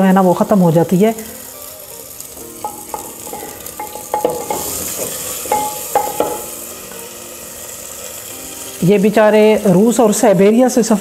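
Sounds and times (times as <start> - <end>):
meat sizzling in hot oil: 0.0 - 11.0
knocks against clay pot: 2.7 - 6.5.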